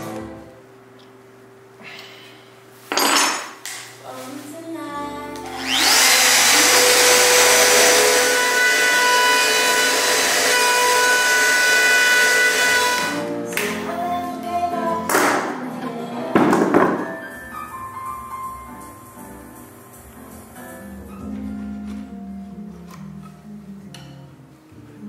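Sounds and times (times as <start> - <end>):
electric router motor whining: 5.4 - 13.3.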